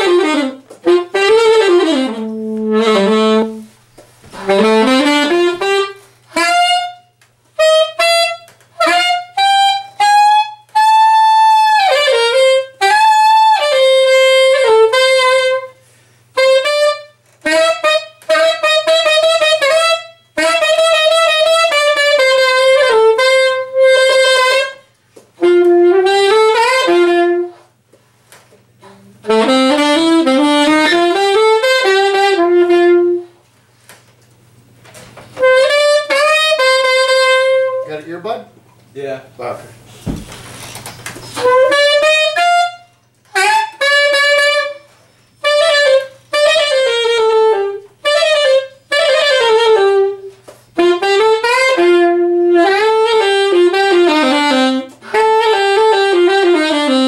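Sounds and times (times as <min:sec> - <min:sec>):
saxophone playing jazz: 0:00.0 - 0:57.0.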